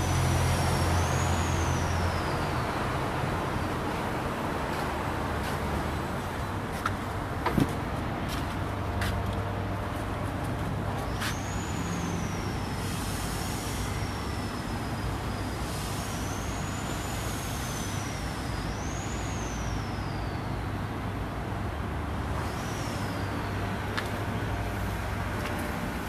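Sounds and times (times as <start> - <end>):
high whistle-like tone: 11.2 - 20.5.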